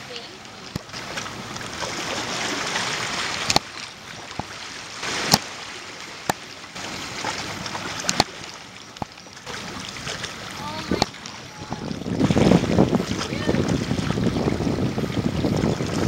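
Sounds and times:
water lapping and sloshing: 0:00.0 - 0:16.0
wind noise: 0:10.6 - 0:16.0.

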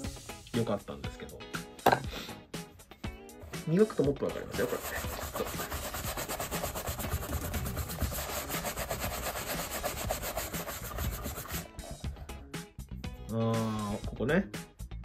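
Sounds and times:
hand rubbing leather shoe: 0:04.5 - 0:12.0.

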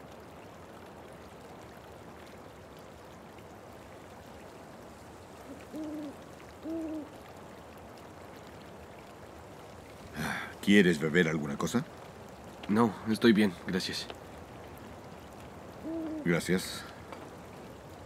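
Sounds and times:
faint night-time outdoor hiss: 0:00.0 - 0:18.0
owl hooting: 0:05.5 - 0:07.1, 0:15.8 - 0:16.3.

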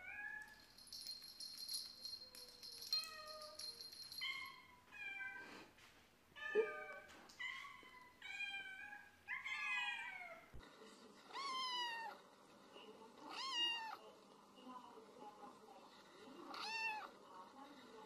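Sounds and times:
cat meowing: 0:16.5 - 0:17.1.

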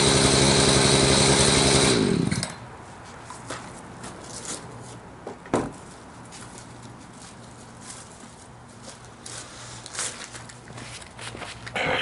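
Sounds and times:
chainsaw running: 0:00.0 - 0:02.6
engine winding down: 0:00.0 - 0:02.6.

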